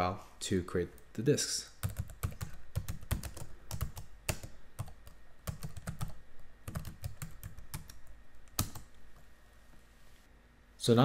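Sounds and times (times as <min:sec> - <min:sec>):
computer keyboard typing: 0:01.8 - 0:09.0.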